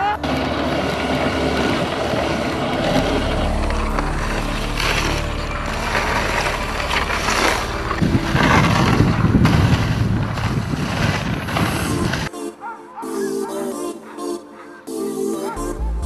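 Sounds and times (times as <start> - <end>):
electronic music: 0.0 - 10.2, 12.3 - 16.0
sled runners hissing over snow: 0.0 - 15.6
wind rushing over microphone: 0.2 - 12.3.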